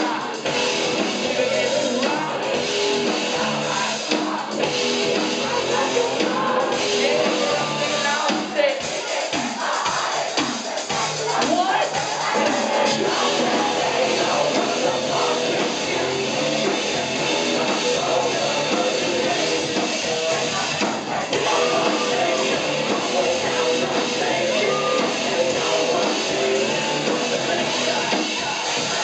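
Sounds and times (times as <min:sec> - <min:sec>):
drums: 0:00.0 - 0:29.0
person singing: 0:00.0 - 0:29.0
rock band playing live: 0:00.0 - 0:29.0
electric guitar: 0:12.3 - 0:29.0.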